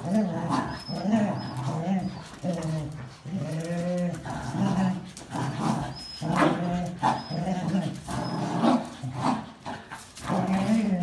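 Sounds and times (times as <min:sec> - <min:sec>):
dogs growling: 0:00.0 - 0:11.0
high squeaks: 0:00.2 - 0:02.8, 0:05.4 - 0:09.0.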